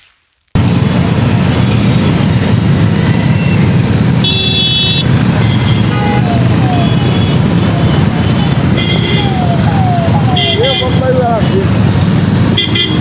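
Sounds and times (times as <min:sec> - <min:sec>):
motorcycle engines rumbling: 0:00.6 - 0:13.0
vehicle horn honking: 0:04.2 - 0:07.5, 0:08.2 - 0:09.3, 0:10.4 - 0:11.1, 0:12.6 - 0:13.0.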